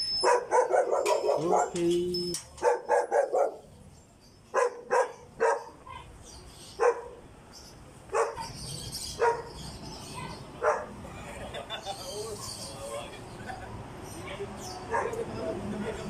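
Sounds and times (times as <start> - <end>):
dog barking: 0.2 - 1.8, 2.6 - 3.7, 4.5 - 6.0, 6.8 - 7.2, 8.1 - 8.6, 9.2 - 9.6, 10.2 - 11.0, 14.2 - 16.0.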